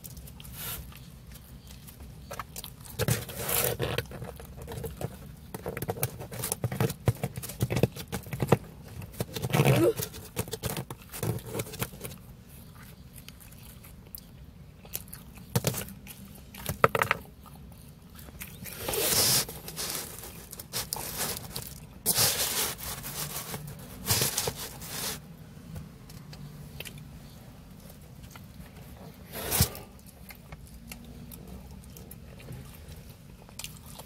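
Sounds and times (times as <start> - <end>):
crunching pizza crust: 0.0 - 25.3.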